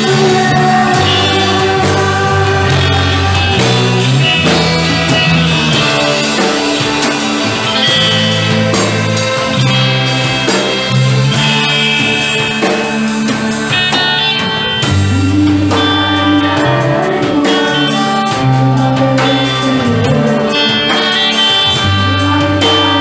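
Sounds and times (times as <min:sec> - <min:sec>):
worship music with band: 0:00.0 - 0:23.0.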